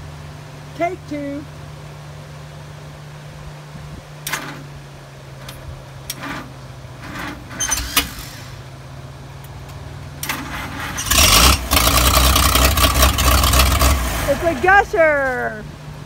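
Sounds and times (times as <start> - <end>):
backhoe engine starting and running: 4.2 - 16.0.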